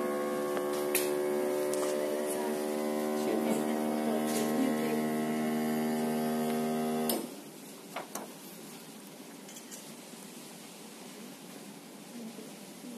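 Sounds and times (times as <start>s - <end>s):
heat press machine humming: 0.0s - 7.4s.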